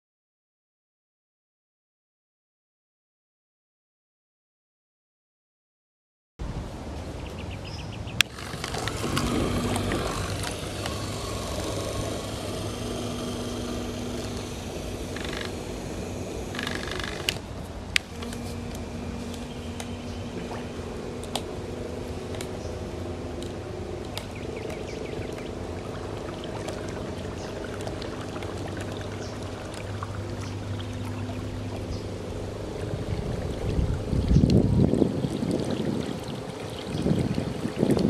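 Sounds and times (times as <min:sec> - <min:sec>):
sharp clicks: 0:08.2 - 0:20.0
electric motor humming: 0:08.2 - 0:38.0
water wash from propeller: 0:08.2 - 0:38.0.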